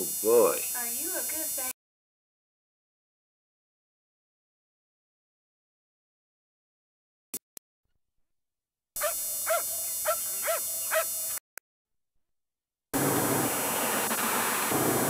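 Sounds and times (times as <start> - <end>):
dog whining yelps: 9.0 - 11.2.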